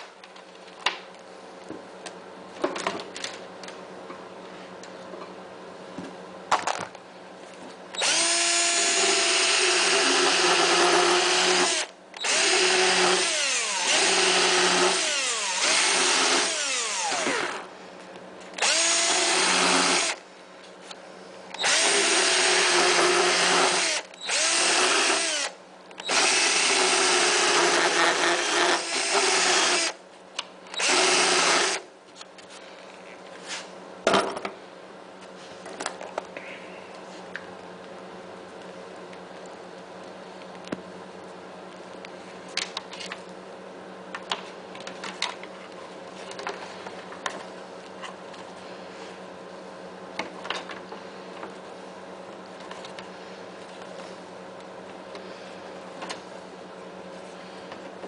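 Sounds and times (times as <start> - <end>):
cordless drill drilling plastic: 8.0 - 17.6, 18.6 - 20.2, 21.6 - 30.0, 30.8 - 31.8.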